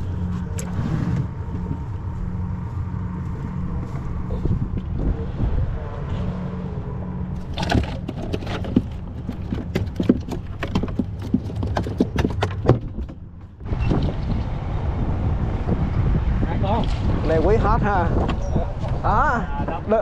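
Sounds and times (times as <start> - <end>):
sharp knocks and taps: 7.8 - 13.5.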